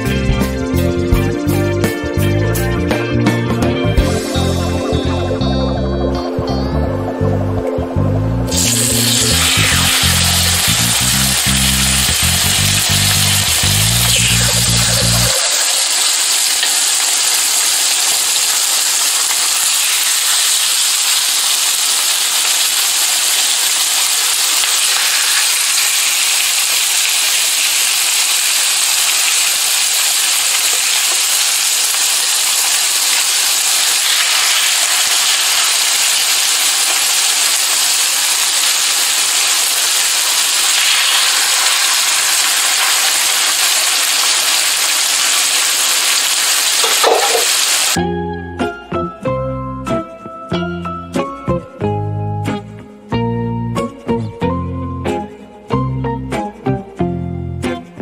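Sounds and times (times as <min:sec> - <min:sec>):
chicken sizzling in a skillet: 0:08.5 - 0:48.0.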